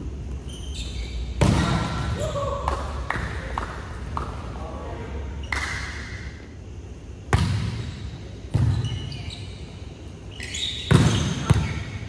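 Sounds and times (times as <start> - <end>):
shoe squeaks on court: 0.4 - 1.4, 8.6 - 12.0
volleyball hit slaps: 1.4 - 4.4, 5.5 - 6.2, 7.3 - 8.8.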